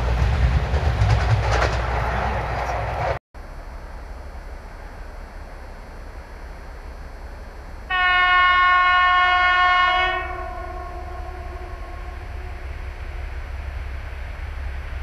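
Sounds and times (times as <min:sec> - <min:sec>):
train horn blast: 0:07.9 - 0:13.3.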